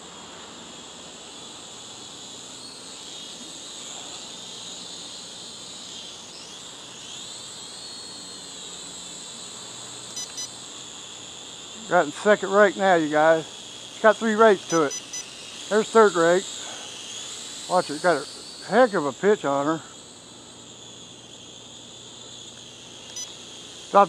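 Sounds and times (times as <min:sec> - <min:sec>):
crickets chirping: 0:00.0 - 0:24.0
toy drone motors whining: 0:00.0 - 0:24.0
short controller beeps: 0:10.2 - 0:10.6, 0:14.7 - 0:15.3, 0:23.1 - 0:23.4.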